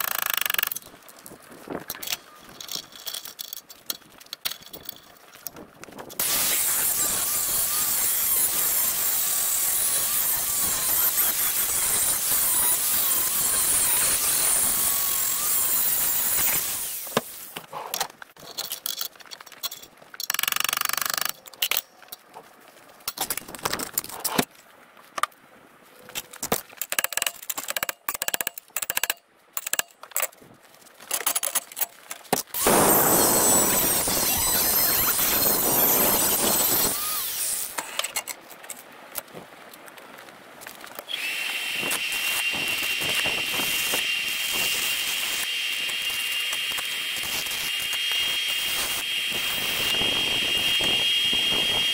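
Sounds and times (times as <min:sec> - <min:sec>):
angle grinder grinding metal: 0:06.2 - 0:17.5, 0:32.6 - 0:38.2, 0:41.1 - 0:51.9.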